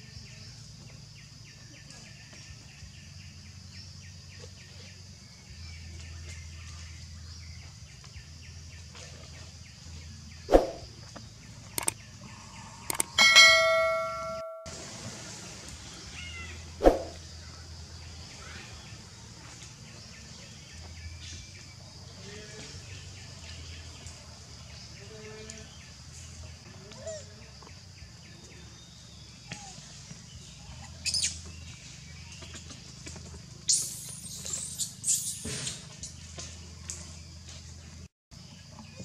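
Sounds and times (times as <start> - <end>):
outdoor background noise: 0.0 - 39.0
click: 11.8 - 12.0, 12.9 - 13.1
bell chime: 13.2 - 14.7
sharp short sounds: 16.8 - 17.2.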